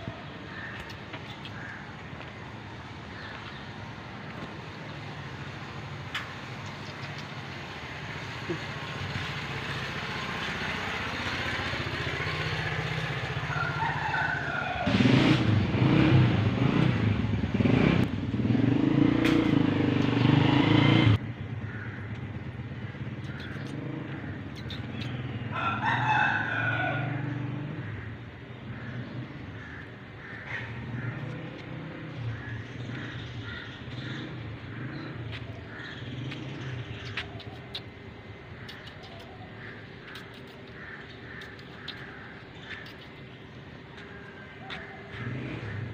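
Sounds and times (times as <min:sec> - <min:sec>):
motor vehicle engine running: 0:00.0 - 0:25.5, 0:28.7 - 0:45.9
rooster crowing: 0:13.4 - 0:15.0, 0:25.5 - 0:27.3.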